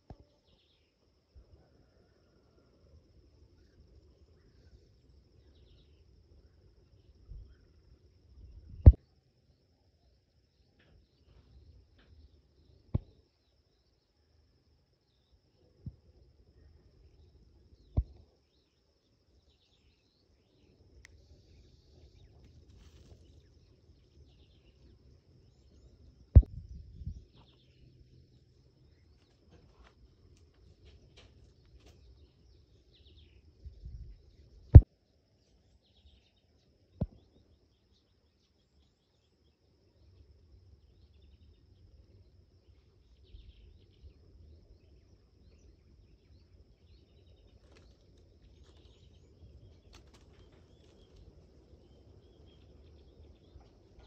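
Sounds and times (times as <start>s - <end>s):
faint bird chirps: 0.0s - 54.0s
low background rumble: 23.3s - 29.1s.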